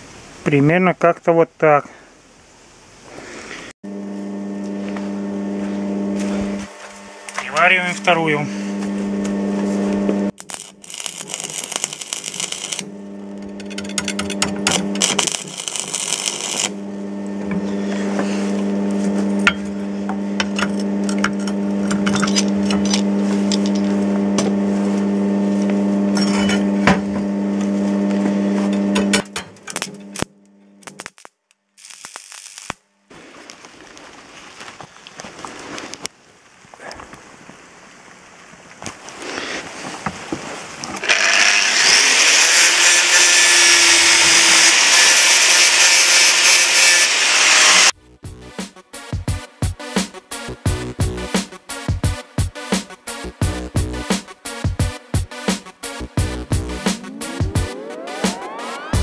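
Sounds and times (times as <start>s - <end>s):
welding machine hum: 3.9s - 33.6s, 41.0s - 48.0s
welding arc crackling: 6.6s - 9.4s, 10.3s - 17.4s, 20.4s - 24.0s, 29.0s - 34.1s, 41.1s - 48.0s.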